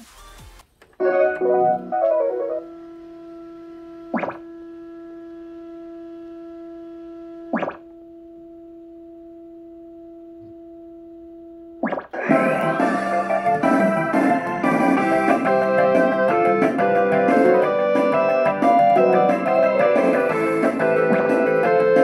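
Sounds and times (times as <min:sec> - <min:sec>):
steady electronic tone: 0:01.0 - 0:21.8
loud electronic tune: 0:04.1 - 0:04.6, 0:11.8 - 0:22.0.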